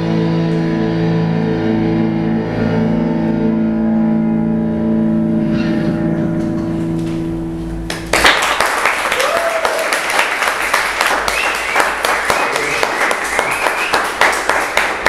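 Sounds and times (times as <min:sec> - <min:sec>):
audience applause: 0:07.9 - 0:15.0.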